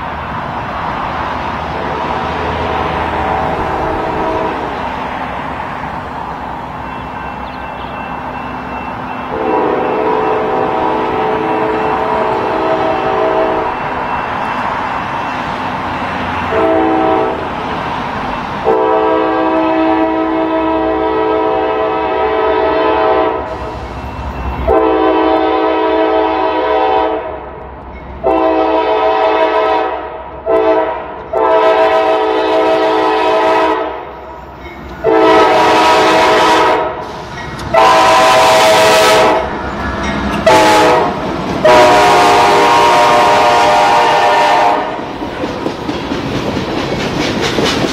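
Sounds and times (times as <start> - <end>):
diesel locomotive rumble: 0.0 - 47.9
locomotive air horn blasts: 2.5 - 4.8, 9.3 - 13.9, 16.5 - 17.5, 18.6 - 23.8, 24.6 - 27.4, 28.2 - 34.1, 35.0 - 37.1, 37.7 - 39.5, 40.4 - 45.0.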